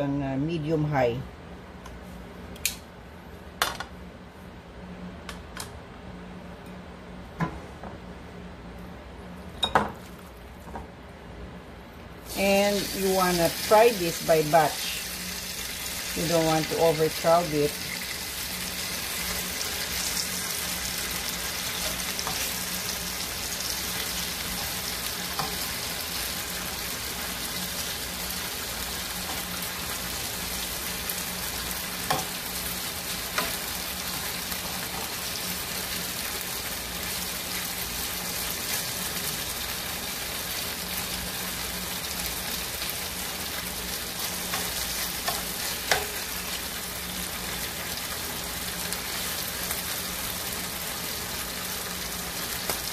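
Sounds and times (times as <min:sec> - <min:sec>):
beef sizzling in frying pan: 0:12.3 - 0:52.9.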